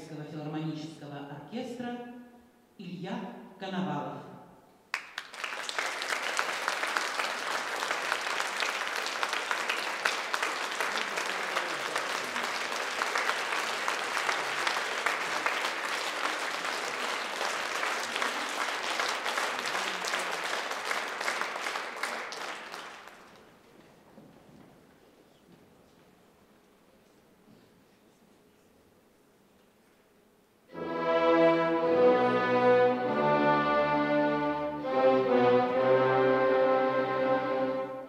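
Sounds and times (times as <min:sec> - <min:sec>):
audience applauding: 0:04.9 - 0:23.7.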